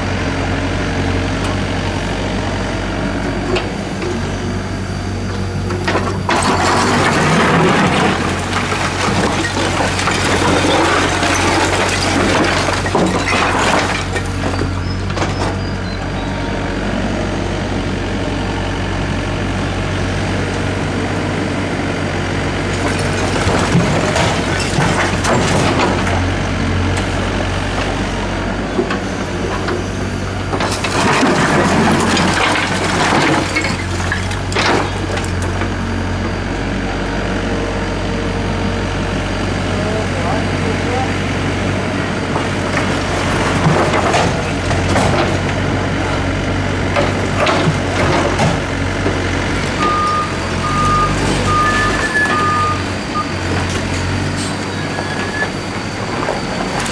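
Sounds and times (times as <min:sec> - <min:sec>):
excavator diesel engine running: 0:00.0 - 0:56.9
rubble crashing and clattering: 0:05.8 - 0:15.7, 0:22.7 - 0:26.3, 0:30.4 - 0:35.8, 0:42.3 - 0:50.4.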